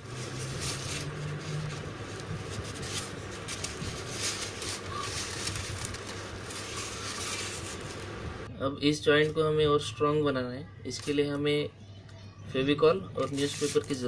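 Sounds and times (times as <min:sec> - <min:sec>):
foam rubbing and crackling: 0:00.0 - 0:08.5, 0:13.2 - 0:14.0.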